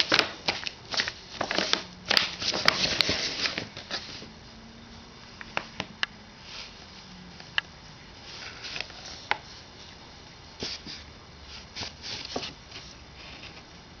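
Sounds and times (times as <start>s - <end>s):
paper bag crinkling and rustling: 0.0s - 4.3s.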